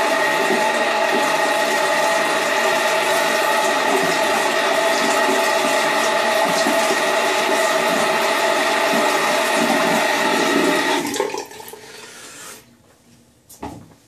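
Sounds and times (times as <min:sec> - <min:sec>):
tap water running into sink: 0:00.0 - 0:12.6.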